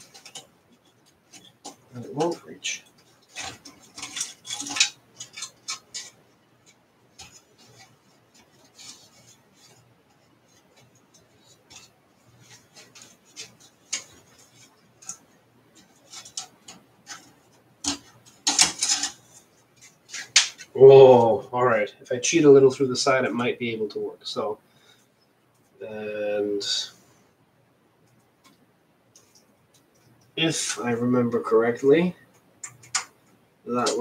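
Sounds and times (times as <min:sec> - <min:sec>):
clicks and rattles of computer parts: 0:00.0 - 0:09.7, 0:11.2 - 0:20.7, 0:32.6 - 0:33.2.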